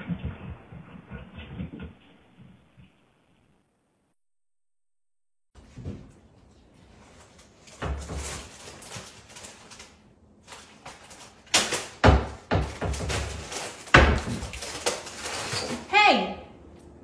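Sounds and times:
cabinet door banging: 0:12.0 - 0:14.4.

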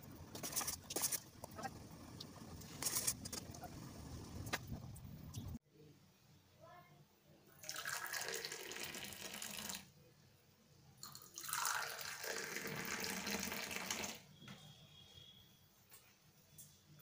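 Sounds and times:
tea pouring into steel cups: 0:07.6 - 0:09.9, 0:11.0 - 0:14.2.

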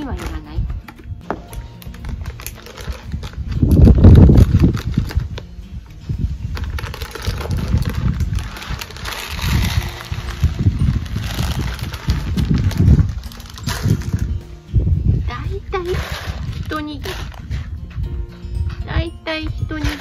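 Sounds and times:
plastic bag rustling: 0:01.4 - 0:05.6, 0:06.4 - 0:14.4, 0:15.8 - 0:17.8
pellets pattering into plastic bowl: 0:06.6 - 0:14.3.

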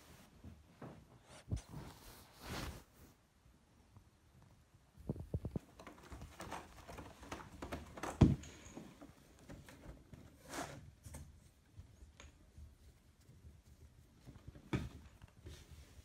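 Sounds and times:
cats tapping on wooden floor: 0:05.1 - 0:10.0.

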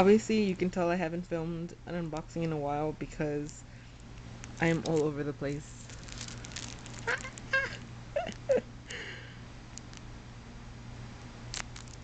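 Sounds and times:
woman squealing: 0:07.0 - 0:07.8.

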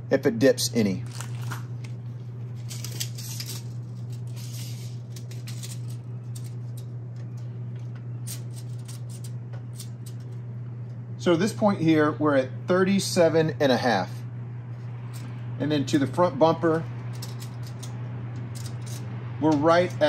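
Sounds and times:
steady low hum: 0:00.0 - 0:20.0
tape measure clicking and rustling: 0:02.6 - 0:06.9, 0:08.3 - 0:10.4, 0:17.1 - 0:19.0.

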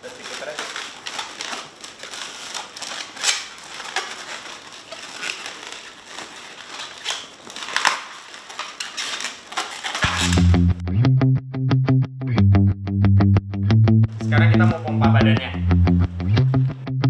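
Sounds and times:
balloon cracks: 0:00.0 - 0:10.8
balloons rubbing scratchily: 0:00.0 - 0:10.8.

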